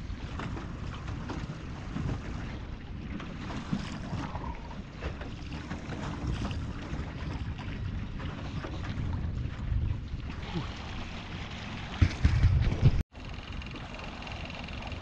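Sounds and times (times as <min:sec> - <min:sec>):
wind noise on microphone: 0:00.0 - 0:13.0
knocks: 0:12.0 - 0:13.0
motor running: 0:13.2 - 0:15.0.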